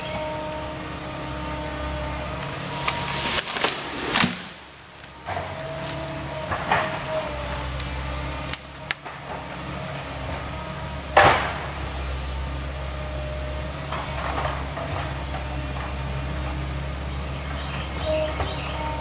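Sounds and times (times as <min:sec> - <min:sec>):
distant diesel engine running: 0:00.0 - 0:19.0
engine whine: 0:00.0 - 0:19.0
loud sharp crack: 0:02.8 - 0:04.6.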